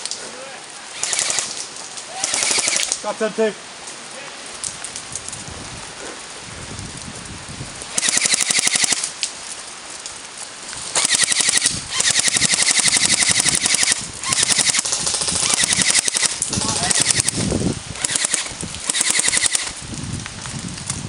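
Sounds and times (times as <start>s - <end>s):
airsoft gun firing full auto: 1.0s - 1.5s, 2.2s - 2.9s, 8.0s - 9.0s, 11.0s - 19.8s.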